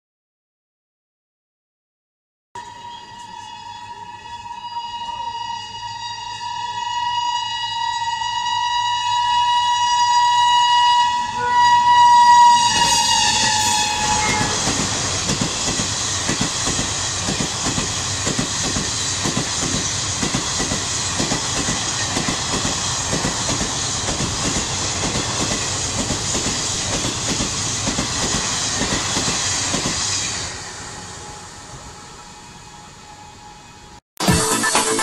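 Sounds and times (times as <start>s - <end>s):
train horn long blast: 2.6s - 15.1s
train wheels clattering over track: 12.6s - 30.5s.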